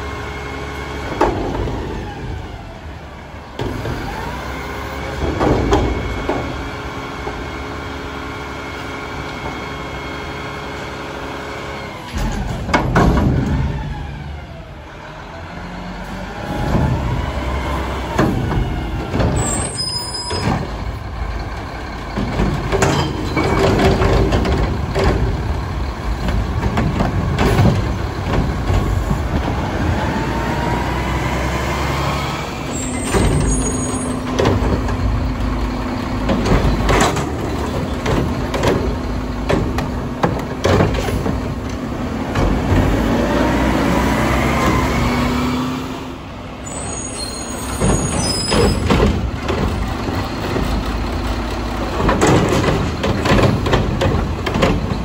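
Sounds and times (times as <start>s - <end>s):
diesel engine revving: 0.0s - 55.0s
metal clanks and bangs: 5.1s - 7.4s, 12.1s - 14.1s, 16.4s - 29.9s, 32.7s - 43.2s, 47.4s - 55.0s.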